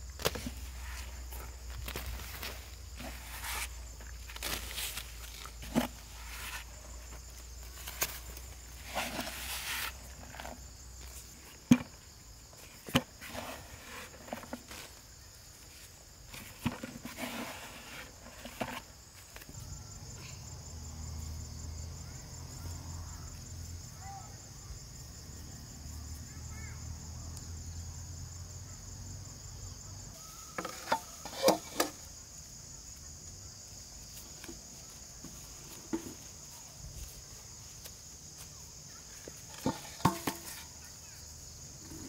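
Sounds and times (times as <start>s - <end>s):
rustling and scraping soil: 0.0s - 21.7s, 30.5s - 32.2s, 33.8s - 42.0s
insects chorusing: 0.0s - 42.0s.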